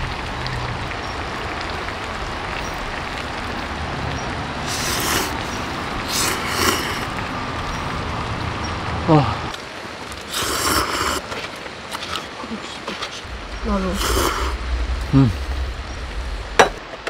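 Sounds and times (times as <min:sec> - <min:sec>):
steady rushing hiss: 0:03.9 - 0:17.0
person slurping noodles: 0:04.7 - 0:05.4, 0:06.1 - 0:07.1, 0:10.3 - 0:11.3.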